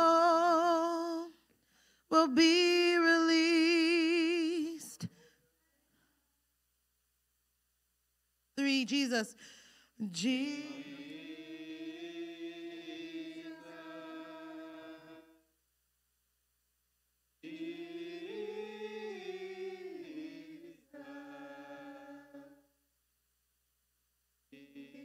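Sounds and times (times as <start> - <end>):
choir singing long held notes: 10.2 - 15.5, 17.4 - 22.8, 24.6 - 25.0.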